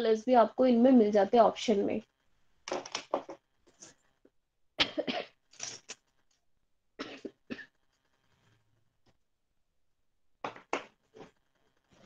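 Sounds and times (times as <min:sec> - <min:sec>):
person coughing: 0:04.8 - 0:05.4, 0:07.0 - 0:07.7.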